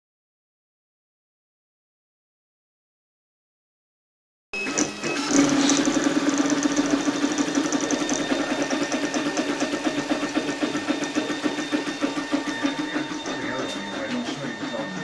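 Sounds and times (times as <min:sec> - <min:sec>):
printer stepper motors whining: 0:04.6 - 0:15.0.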